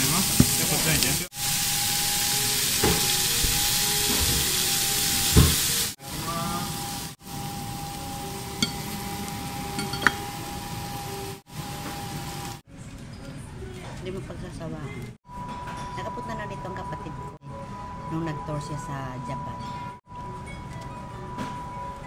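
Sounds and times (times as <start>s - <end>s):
steak sizzling on hot plate: 0.0s - 12.6s.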